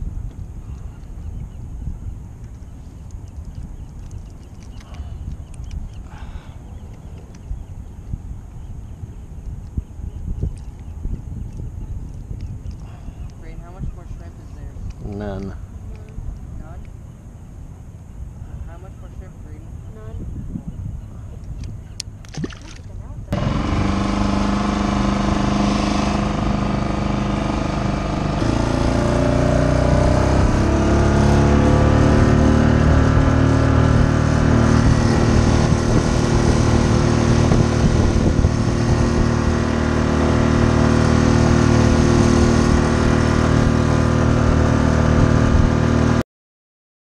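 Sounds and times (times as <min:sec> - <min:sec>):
outboard motor running: 0:03.3 - 0:07.7, 0:12.3 - 0:16.0, 0:22.2 - 0:46.2.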